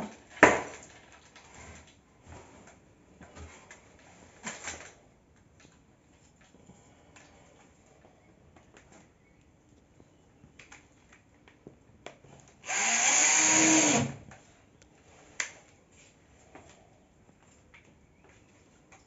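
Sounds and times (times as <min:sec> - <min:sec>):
cordless drill driving a screw: 0:12.6 - 0:14.2.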